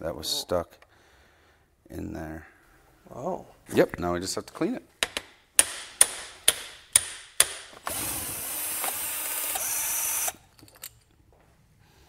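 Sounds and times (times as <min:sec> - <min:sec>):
cordless drill running: 0:07.8 - 0:10.4.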